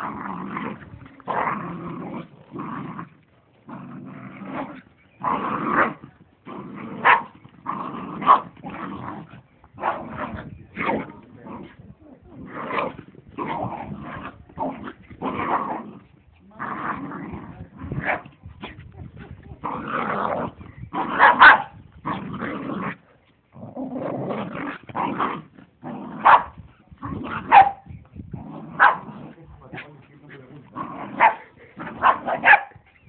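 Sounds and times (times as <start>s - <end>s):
dogs growling: 0.0s - 33.0s
dog barking and yipping: 7.0s - 7.4s, 21.1s - 21.7s, 26.2s - 26.5s, 27.3s - 27.9s, 28.8s - 29.1s, 31.1s - 32.8s.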